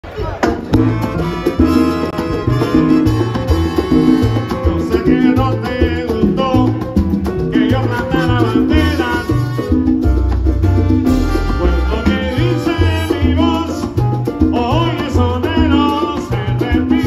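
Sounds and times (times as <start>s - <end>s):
congas: 0.0s - 17.0s
upright bass: 0.0s - 17.0s
horn section melody: 0.8s - 5.5s, 7.8s - 13.8s.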